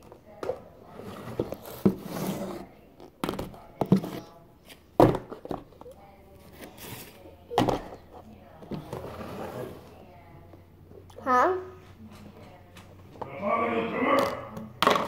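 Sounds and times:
plastic tubs thunking: 0:05.0 - 0:05.8, 0:07.5 - 0:09.3
faint voice: 0:13.2 - 0:14.7.

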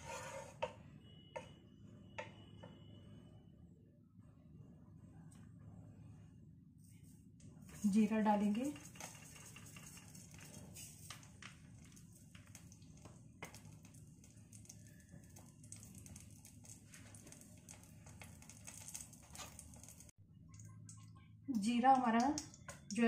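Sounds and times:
seeds crackling in hot oil: 0:07.6 - 0:23.0.

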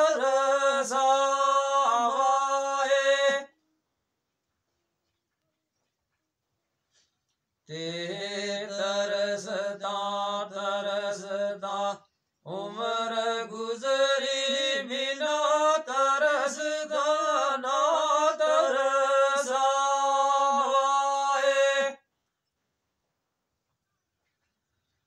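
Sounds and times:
man singing unaccompanied: 0:00.0 - 0:03.6, 0:07.7 - 0:22.1.

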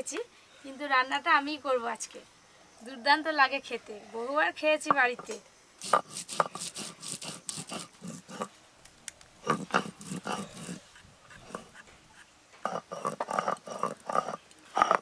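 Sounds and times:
blade scraping skin: 0:05.8 - 0:08.5, 0:09.5 - 0:11.9.

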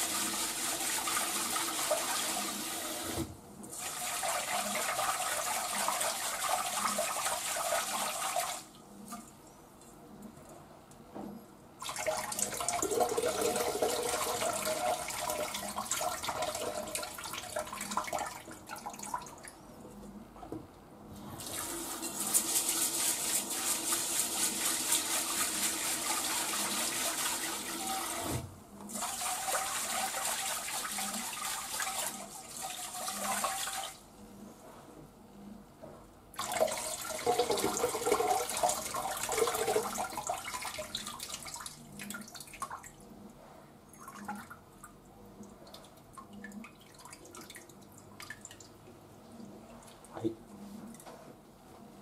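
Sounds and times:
tap water running into a pot: 0:28.9 - 0:34.0, 0:36.4 - 0:41.2.

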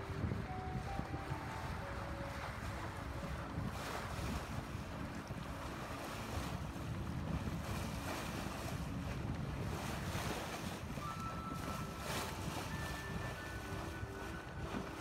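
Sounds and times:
water rushing along hull: 0:00.0 - 0:15.0
wind buffeting microphone: 0:00.0 - 0:15.0.

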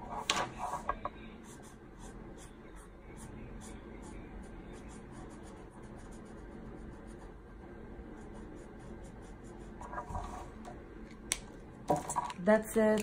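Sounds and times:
marker scratching on paper: 0:00.0 - 0:07.4, 0:08.2 - 0:10.6.

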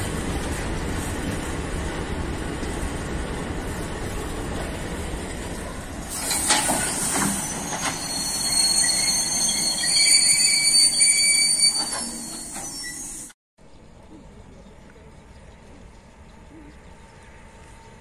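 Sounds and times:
freight train rumbling: 0:00.0 - 0:13.4
wheels clacking over rail joints: 0:04.0 - 0:10.4
train wheel squeal: 0:06.1 - 0:13.4.

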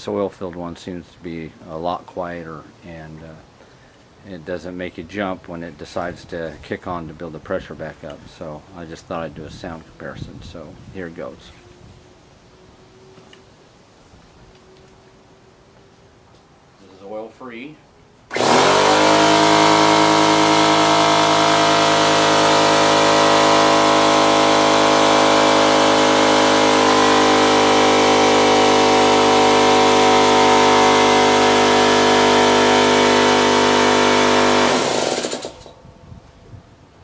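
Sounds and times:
air compressor running: 0:18.3 - 0:35.8.

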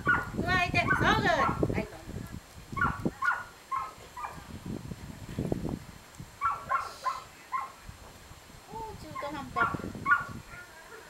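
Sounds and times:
dog yelping: 0:00.0 - 0:01.6, 0:02.8 - 0:04.4, 0:06.4 - 0:07.8, 0:09.2 - 0:11.0.

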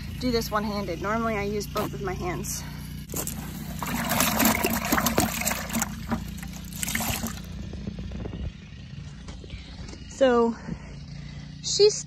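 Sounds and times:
steady low hum: 0:00.0 - 0:12.0
water splashing in a bucket: 0:03.1 - 0:07.6.

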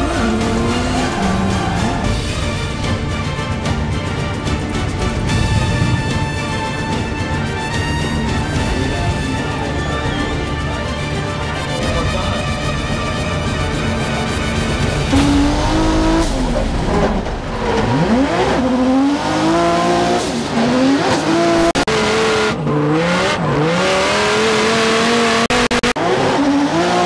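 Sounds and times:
car engine revving hard: 0:00.0 - 0:02.2, 0:14.8 - 0:27.0
music: 0:00.0 - 0:22.5.

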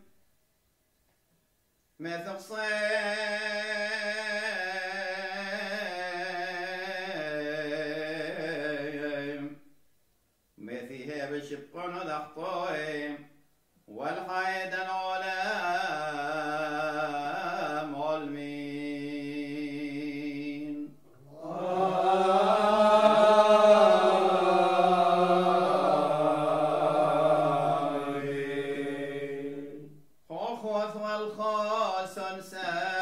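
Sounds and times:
man chanting: 0:02.0 - 0:09.6, 0:10.6 - 0:13.3, 0:13.9 - 0:29.5, 0:30.3 - 0:33.0
voices singing together: 0:15.6 - 0:30.0.

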